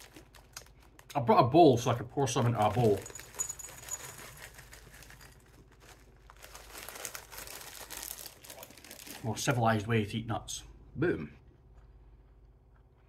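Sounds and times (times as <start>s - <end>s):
plastic snack packet crinkling: 0.0s - 9.6s
nuts pouring into bowl: 2.4s - 5.4s.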